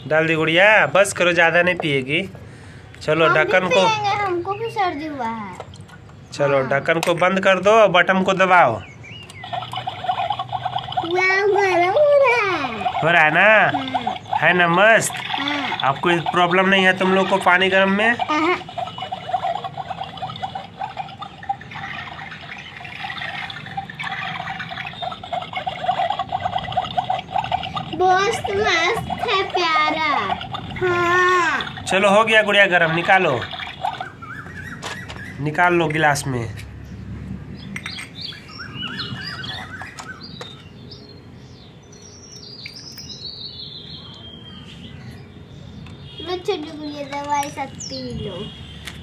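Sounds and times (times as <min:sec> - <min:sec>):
birds chirping: 0:00.0 - 0:49.0
toy kettle bubbling: 0:09.3 - 0:34.2
water pouring into steel cup: 0:09.4 - 0:11.8, 0:12.6 - 0:34.2.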